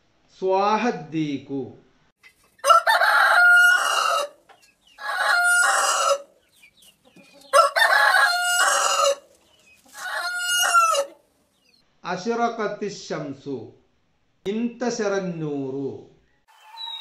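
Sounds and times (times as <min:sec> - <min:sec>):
rooster crowing: 0:02.6 - 0:04.4, 0:05.0 - 0:06.3, 0:07.5 - 0:09.3, 0:09.9 - 0:11.2, 0:16.5 - 0:17.0.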